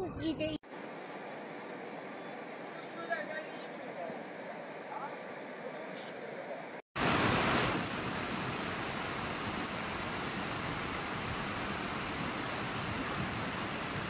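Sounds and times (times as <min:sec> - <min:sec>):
rain falling: 0:07.0 - 0:14.0
river rushing in flood: 0:07.0 - 0:14.0.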